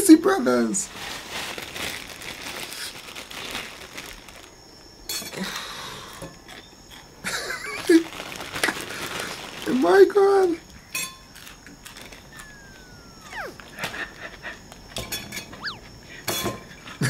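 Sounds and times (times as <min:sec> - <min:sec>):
plastic bag crinkling: 0:00.9 - 0:04.6, 0:07.8 - 0:09.9.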